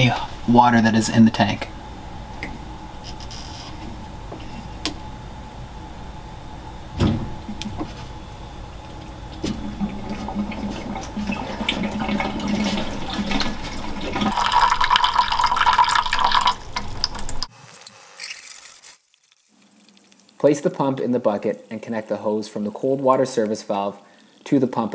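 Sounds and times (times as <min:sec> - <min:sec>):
valve thump: 0:06.9 - 0:07.9.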